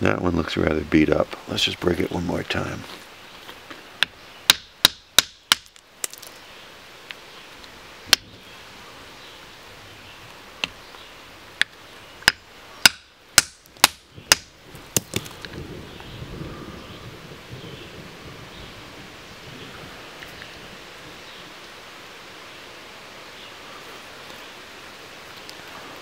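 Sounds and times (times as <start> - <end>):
hammer cracking on stone: 4.5 - 6.3, 12.3 - 15.4.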